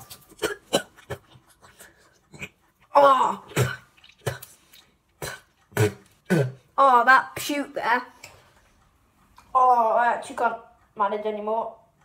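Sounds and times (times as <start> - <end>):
boy coughing: 0.3 - 1.2
boy retching: 2.3 - 4.6, 5.2 - 6.8.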